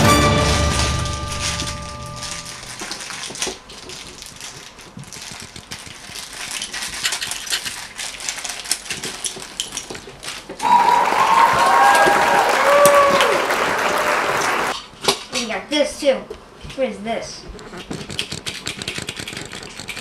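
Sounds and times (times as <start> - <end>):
plastic toy pieces clicking: 0.9 - 10.6, 17.8 - 20.0.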